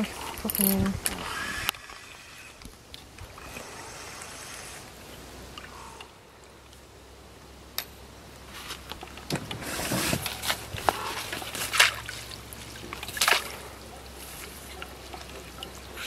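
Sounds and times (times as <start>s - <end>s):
fish splashing in water: 10.8s - 16.0s.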